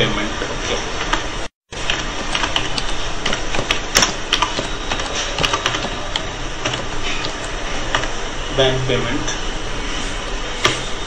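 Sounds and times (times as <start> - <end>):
keyboard keys clicking: 1.8 - 8.2.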